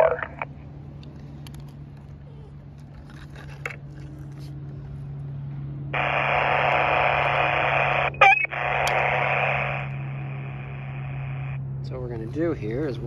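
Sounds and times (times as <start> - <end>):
radio static hiss: 0.0 - 0.5, 6.0 - 11.6.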